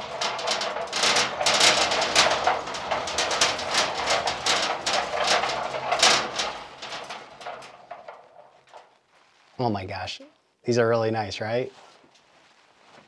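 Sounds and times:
rack rolling on casters: 0.0 - 9.0
steel frame clattering: 0.0 - 9.4.

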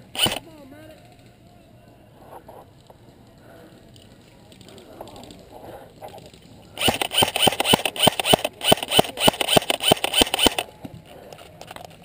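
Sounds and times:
airsoft rifle shots: 0.0 - 0.4, 6.8 - 10.7.

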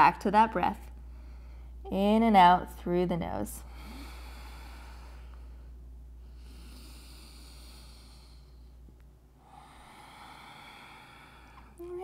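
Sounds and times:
faint low hum: 0.0 - 12.0
person breathing through the nose: 6.3 - 8.7, 9.4 - 11.8.

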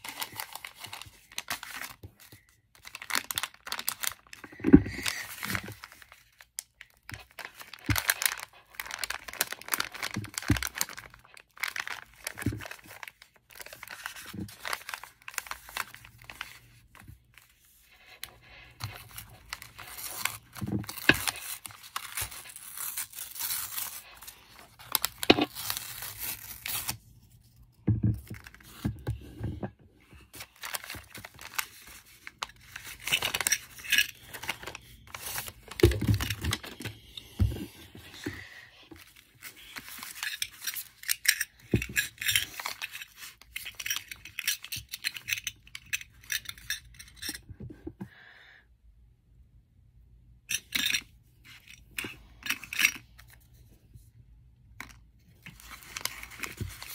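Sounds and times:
paper tearing and crinkling: 18.8 - 27.0, 30.3 - 37.1.

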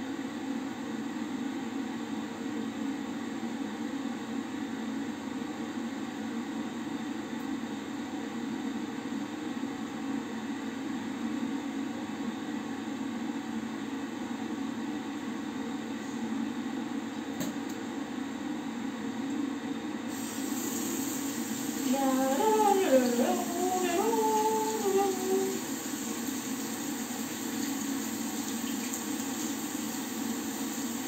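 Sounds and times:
tap running into washbasin: 24.7 - 31.0.

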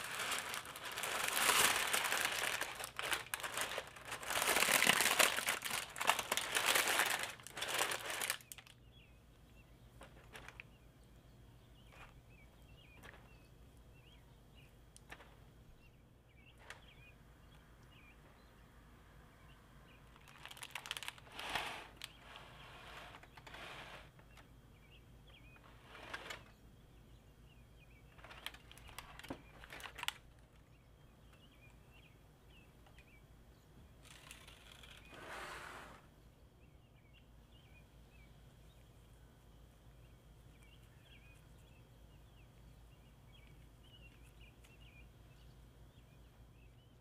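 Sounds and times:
baking paper rustling: 0.0 - 8.8, 20.2 - 24.2, 28.2 - 30.5.

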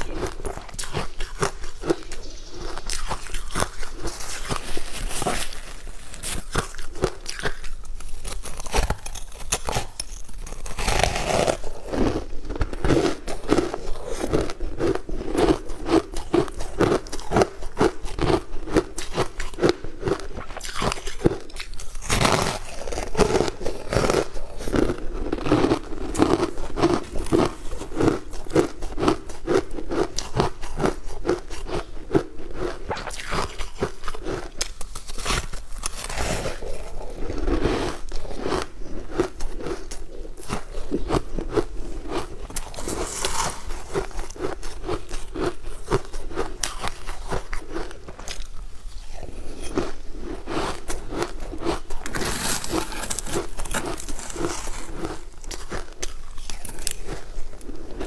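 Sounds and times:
ice being chewed: 0.0 - 58.0.

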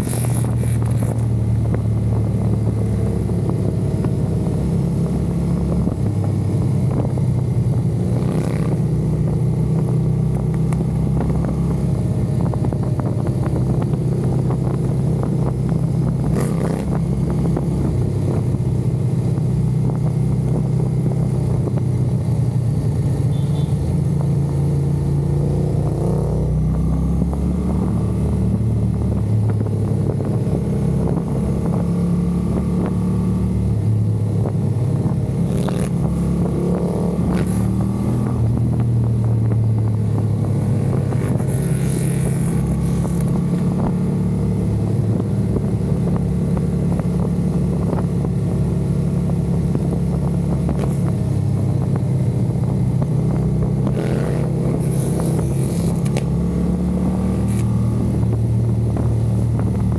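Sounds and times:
vehicle engines running: 0.0 - 59.9
engines revving: 14.2 - 18.1, 34.4 - 38.8, 40.2 - 45.3, 53.3 - 59.9.

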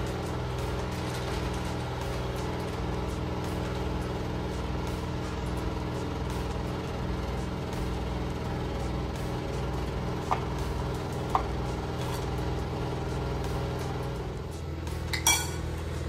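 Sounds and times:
kitchen appliance humming: 0.0 - 16.0
metal spoon clinking on ceramic bowl: 15.2 - 15.6.

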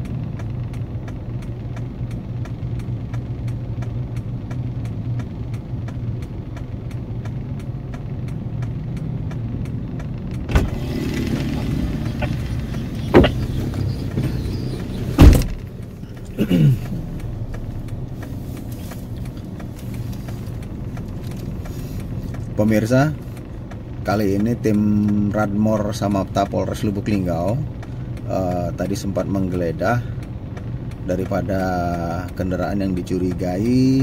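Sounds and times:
faint regular ticking: 0.0 - 34.0
vehicle engine idling: 0.0 - 34.0
sharp knocks: 10.4 - 15.7.

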